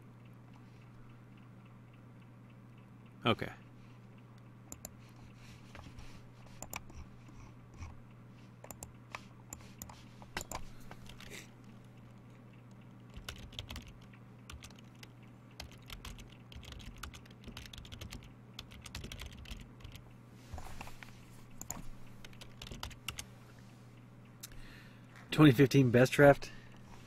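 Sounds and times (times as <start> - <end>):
steady low hum: 0.0 - 27.0
typing on computer keyboard: 6.5 - 7.0, 8.6 - 11.3, 13.0 - 20.0, 21.6 - 23.2.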